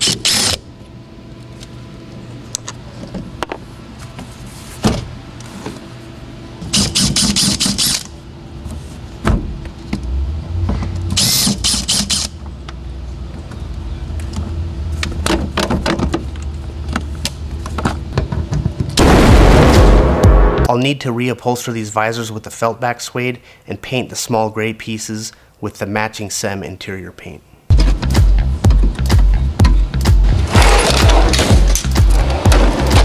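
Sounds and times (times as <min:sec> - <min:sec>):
cordless drill whirring: 0:11.2 - 0:12.3.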